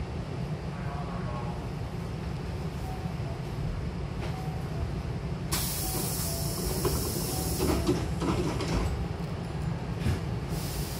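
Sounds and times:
standing train rumble: 0.0s - 10.9s
air hissing: 5.5s - 7.9s, 10.5s - 10.9s.

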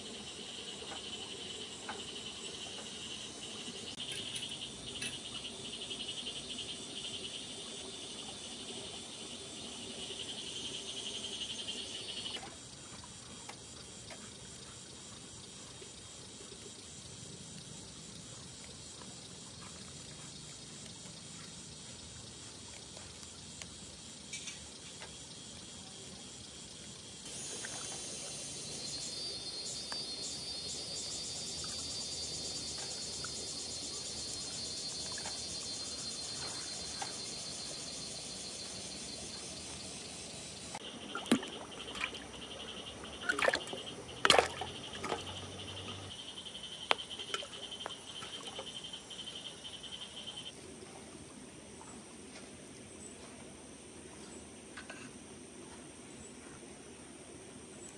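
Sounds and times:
insects chirring: 0.0s - 52.1s
shallow river washing: 40.8s - 46.2s.

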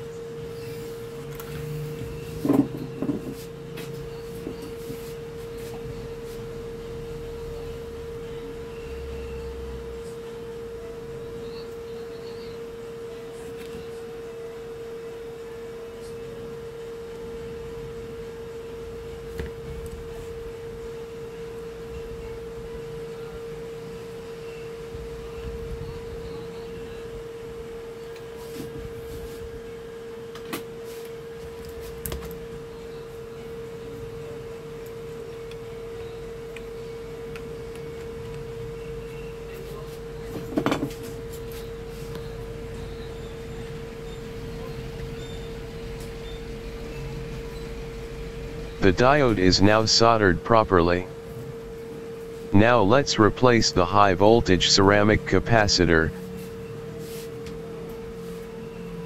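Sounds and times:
steady pure tone: 48.8s - 51.1s, 52.6s - 56.1s.

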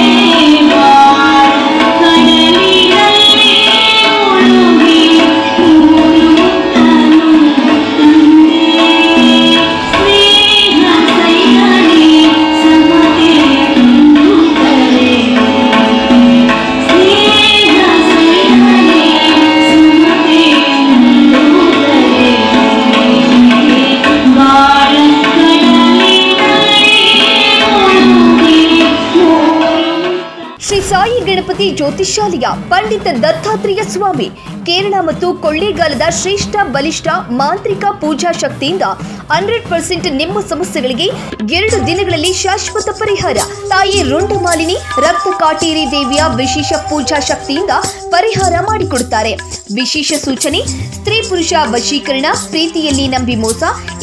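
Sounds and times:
tabla: 0.0s - 54.0s
woman singing: 0.0s - 54.0s.

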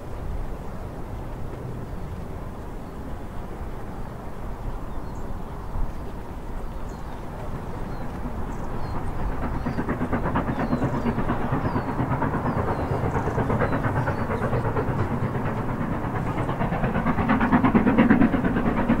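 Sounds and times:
steam locomotive chuffing: 6.3s - 19.0s.

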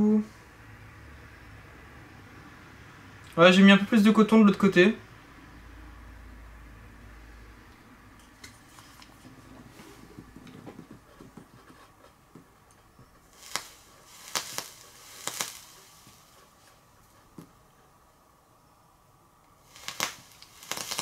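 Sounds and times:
handling rustles: 8.5s - 17.6s
liquid popping on hot coil: 13.2s - 16.4s, 19.5s - 21.0s.

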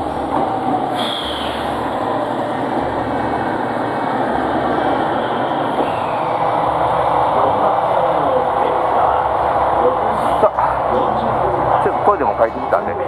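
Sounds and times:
electric train running: 0.0s - 13.0s.

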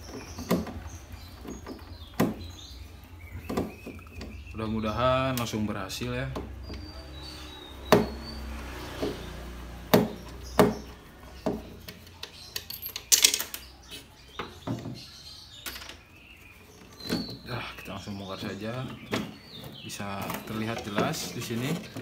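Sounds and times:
hand tools clicking and knocking: 3.3s - 4.6s, 7.8s - 16.1s, 16.7s - 22.0s
plastic parts clattering: 11.5s - 13.8s, 18.7s - 22.0s.

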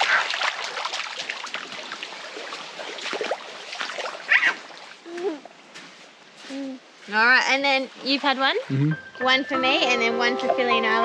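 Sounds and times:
shallow water splashing: 0.0s - 8.8s.

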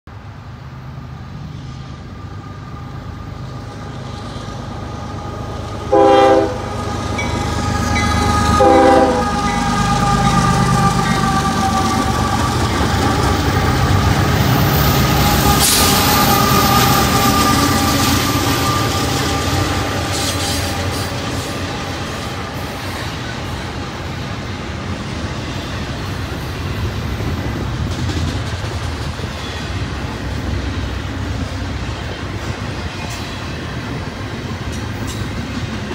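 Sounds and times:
diesel locomotive engines: 0.1s - 35.9s
train wheels rumbling on rail: 0.1s - 35.9s
train horn blasts: 5.9s - 12.0s.

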